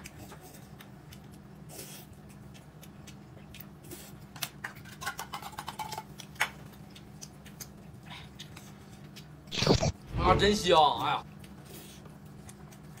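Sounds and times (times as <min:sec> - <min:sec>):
eating noises: 0:00.0 - 0:10.0
steady low hum: 0:06.7 - 0:13.0.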